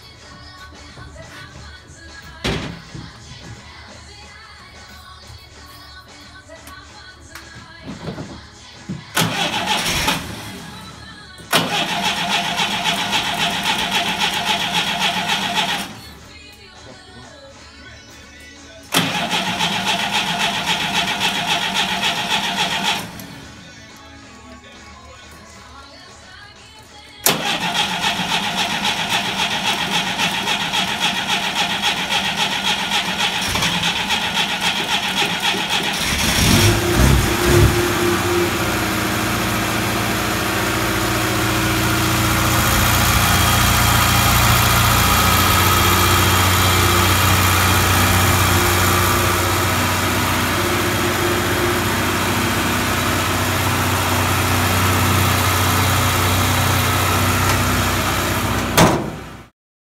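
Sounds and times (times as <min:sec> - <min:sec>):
starter motor cranking: 0:09.2 - 0:10.9, 0:11.5 - 0:16.1, 0:18.9 - 0:23.5, 0:27.3 - 0:38.8, 0:40.6 - 0:52.5
petrol engine running: 0:09.2 - 0:16.1, 0:18.9 - 0:23.8, 0:27.3 - 0:59.5.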